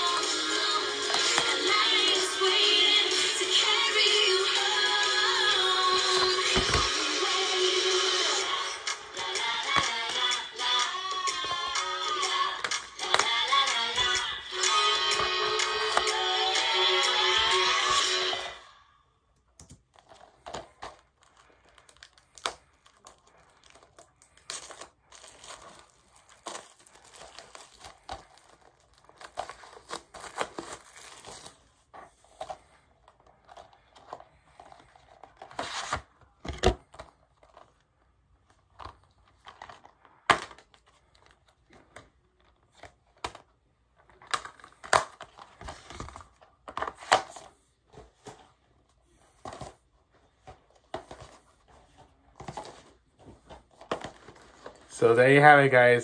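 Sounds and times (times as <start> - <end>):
plastic wrap crinkling and tearing: 19.8 - 31.9.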